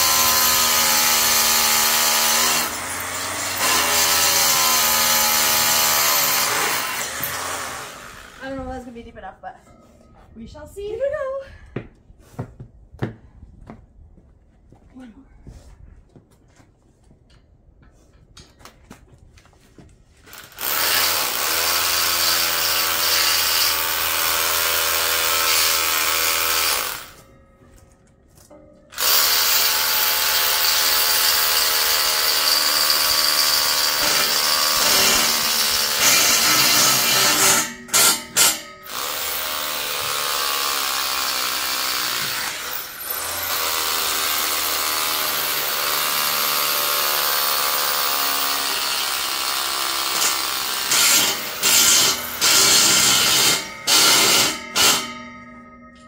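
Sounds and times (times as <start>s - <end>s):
cordless drill into concrete: 0.0s - 8.6s, 20.3s - 27.2s, 28.9s - 55.0s.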